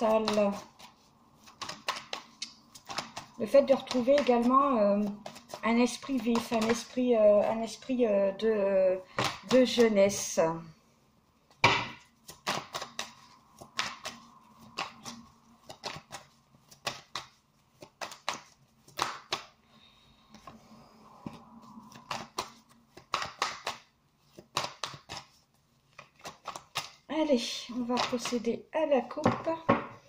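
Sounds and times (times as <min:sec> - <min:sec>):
cards being shuffled: 0:00.0 - 0:07.7, 0:11.5 - 0:19.6, 0:21.2 - 0:27.1, 0:27.7 - 0:28.5.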